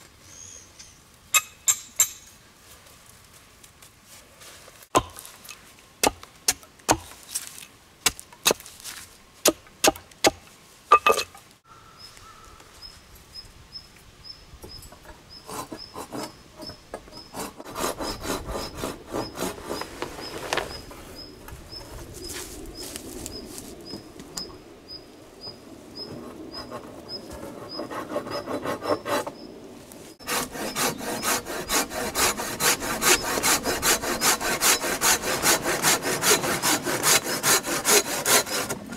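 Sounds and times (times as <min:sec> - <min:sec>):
hand saw cutting wood: 0:15.4 - 0:16.4, 0:17.0 - 0:20.8, 0:26.5 - 0:29.4, 0:30.2 - 0:38.9.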